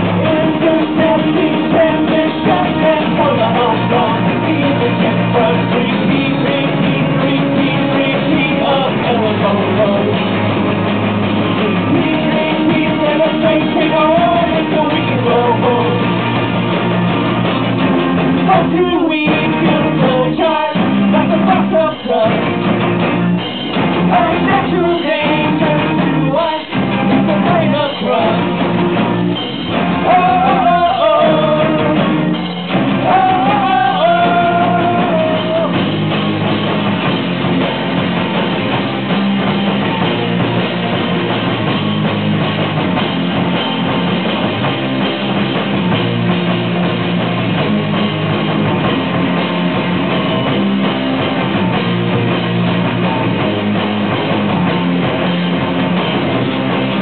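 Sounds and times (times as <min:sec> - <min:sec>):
person singing: 0:00.0 - 0:10.3, 0:11.6 - 0:16.2, 0:18.5 - 0:22.6, 0:24.1 - 0:28.5, 0:30.0 - 0:35.8
live rock band playing: 0:00.0 - 0:57.0.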